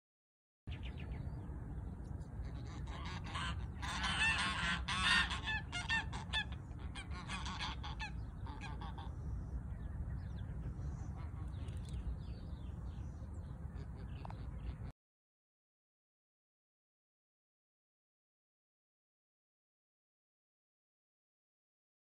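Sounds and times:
geese honking: 0:02.4 - 0:09.2.

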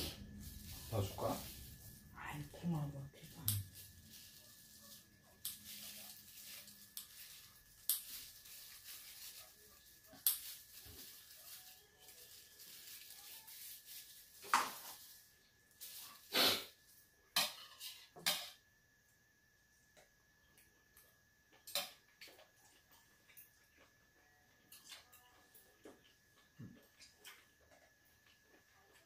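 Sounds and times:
plastic glove rustling: 0:00.0 - 0:16.4.

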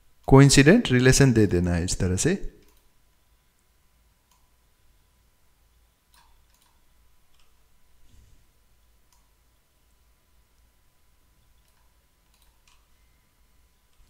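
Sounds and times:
low room hum: 0:00.0 - 0:14.0
computer mouse clicks: 0:02.6 - 0:02.9, 0:04.2 - 0:04.5, 0:06.1 - 0:07.6, 0:09.1 - 0:09.3, 0:11.4 - 0:12.9.

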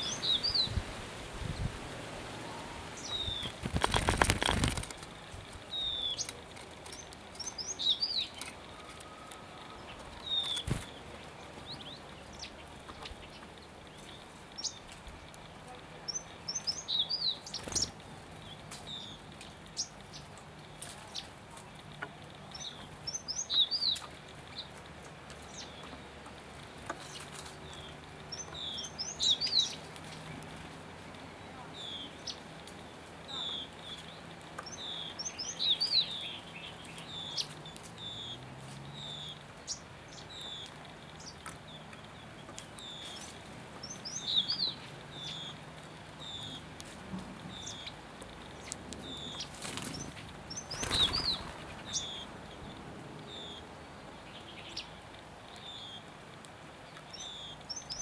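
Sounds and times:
songbird singing descending notes: 0:00.0 - 0:00.8, 0:01.4 - 0:03.6, 0:33.3 - 0:46.7.

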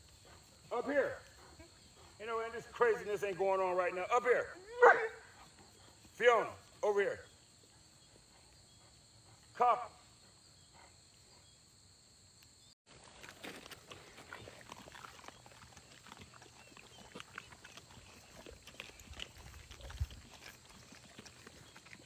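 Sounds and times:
dogs chewing meat: 0:12.9 - 0:22.0.

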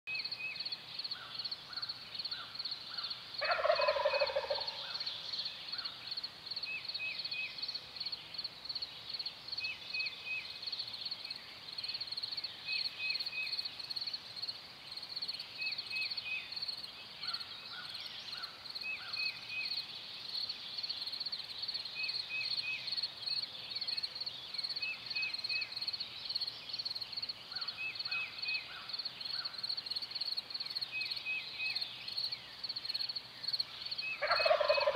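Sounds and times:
turkey gobbling: 0:03.4 - 0:04.8, 0:34.2 - 0:34.9.

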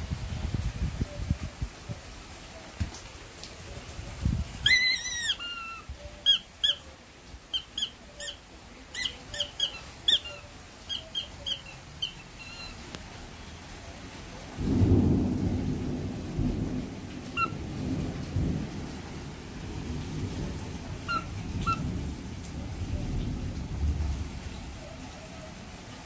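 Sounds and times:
squeaky toy squeaking: 0:04.6 - 0:06.8, 0:07.5 - 0:12.9, 0:21.1 - 0:21.8.

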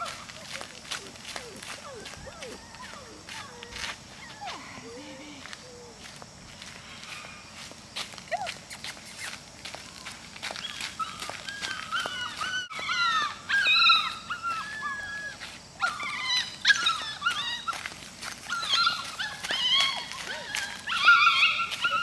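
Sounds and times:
puppy whining and yelping: 0:00.0 - 0:06.0, 0:10.6 - 0:22.0.

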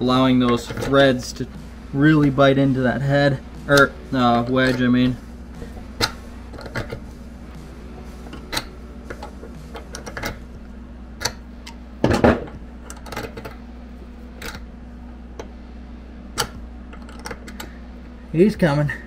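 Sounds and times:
low hum: 0:00.0 - 0:19.0
metal clicks and scrapes: 0:00.4 - 0:01.2, 0:05.6 - 0:07.1, 0:08.3 - 0:10.4, 0:12.8 - 0:13.6.

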